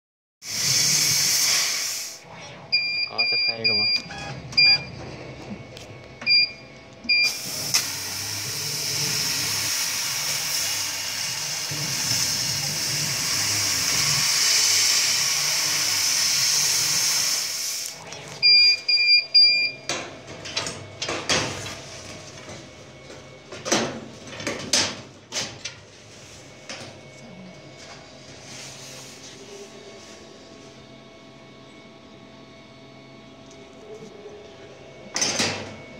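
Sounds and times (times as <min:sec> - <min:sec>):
hiss of assist gas: 0:00.4 - 0:02.2, 0:07.3 - 0:17.9.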